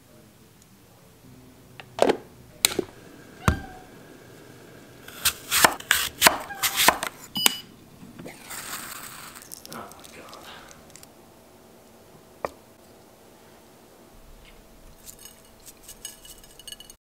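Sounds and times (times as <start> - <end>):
kitchenware clattering: 14.9 - 17.0.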